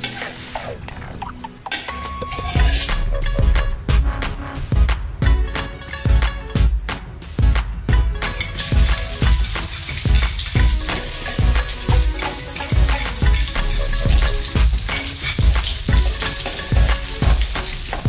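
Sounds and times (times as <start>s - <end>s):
regular low beat: 2.5s - 18.0s
garlic sizzling in hot oil: 8.4s - 18.0s
metal ladle stirring in wok: 8.4s - 18.0s.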